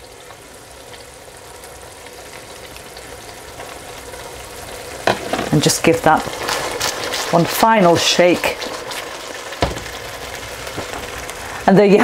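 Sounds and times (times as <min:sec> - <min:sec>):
curry sizzling in a pan: 0:00.0 - 0:12.0.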